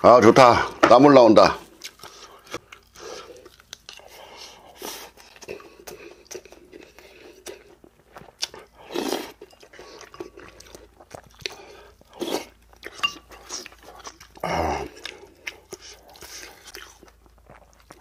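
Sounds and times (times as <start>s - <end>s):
man chewing: 1.6s - 18.0s
breathy noises: 14.4s - 16.6s.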